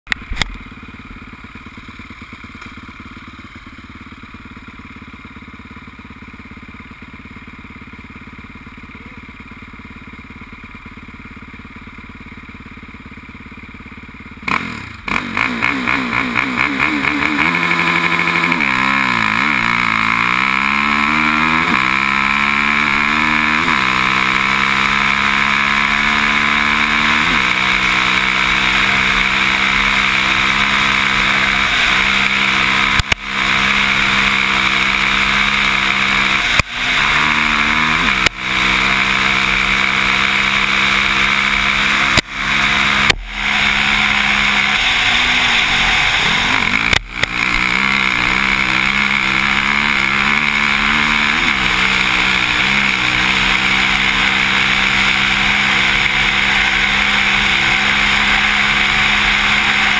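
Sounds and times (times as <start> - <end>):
quad engine revving: 14.3 - 59.9.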